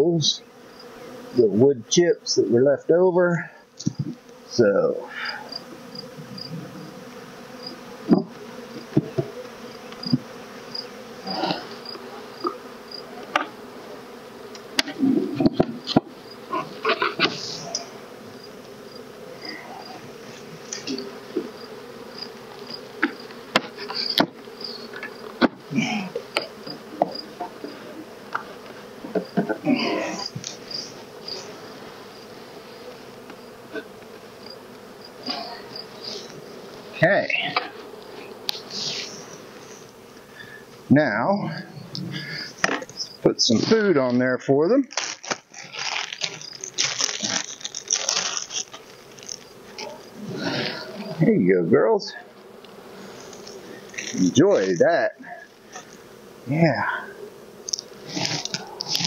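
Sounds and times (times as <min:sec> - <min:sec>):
honey bees buzzing: 0:00.0 - 0:59.0
wooden hive parts knocking: 0:08.1 - 0:10.4, 0:23.0 - 0:27.6.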